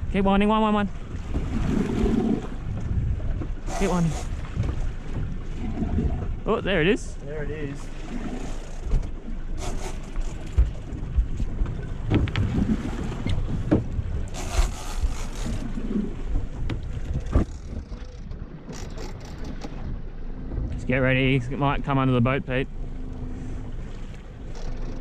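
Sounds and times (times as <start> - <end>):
water slapping against boat hull: 0.8 - 6.5, 7.7 - 20.9
wind buffeting microphone: 0.9 - 6.8, 7.5 - 21.9.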